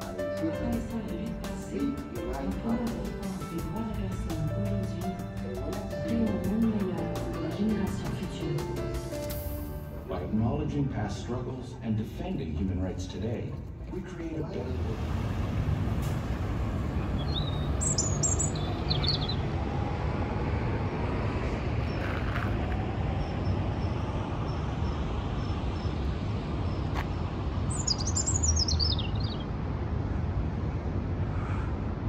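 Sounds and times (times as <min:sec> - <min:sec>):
city traffic rumble: 0:00.0 - 0:32.0
songbird chirping: 0:16.8 - 0:19.6, 0:23.2 - 0:29.6.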